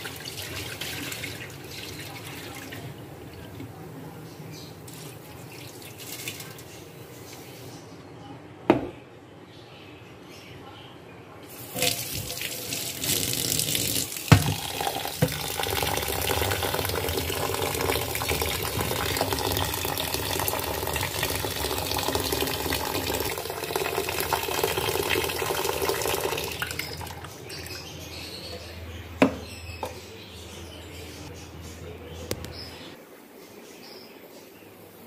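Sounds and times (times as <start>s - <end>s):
tap water running into bowl: 0.0s - 3.7s, 4.9s - 6.7s, 11.5s - 27.6s.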